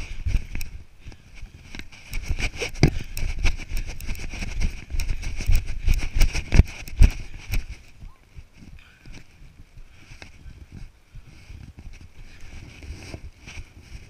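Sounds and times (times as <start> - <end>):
wind rumbling on microphone: 0.0 - 14.0
running footsteps thumping: 1.4 - 8.1.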